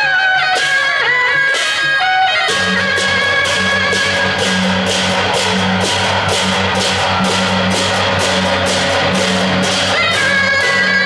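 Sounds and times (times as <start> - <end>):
hand cymbals crashing: 0.5 - 11.0
low drum and gong: 2.5 - 10.4.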